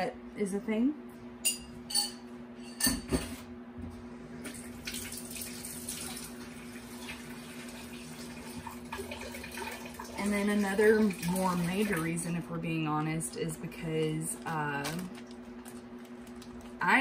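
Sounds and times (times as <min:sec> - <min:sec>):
tap water running into sink: 0:04.5 - 0:12.0.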